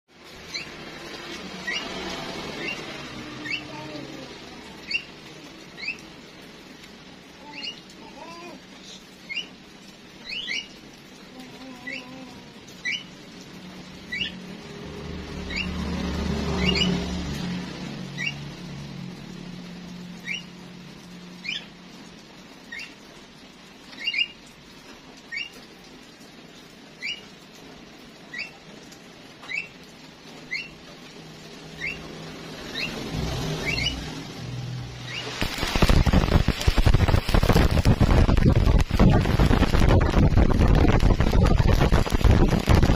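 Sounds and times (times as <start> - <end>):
small bird chirping: 4.7 - 5.2, 7.4 - 9.6, 10.2 - 10.8, 31.8 - 32.1, 33.6 - 34.0.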